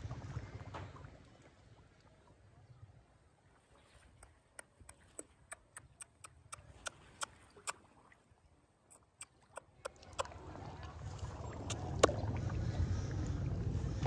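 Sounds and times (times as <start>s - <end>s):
fish gulping at water surface: 3.8s - 13.7s.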